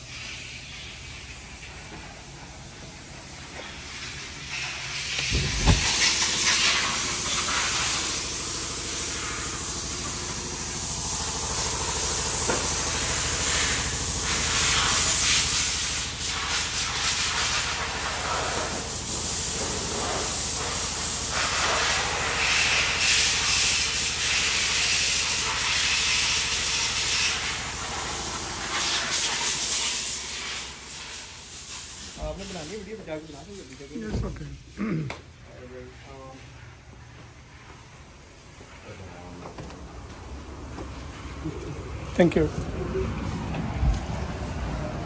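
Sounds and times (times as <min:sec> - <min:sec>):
loud uneven hiss: 0:00.0 - 0:34.8
door thumping open: 0:05.2 - 0:06.4.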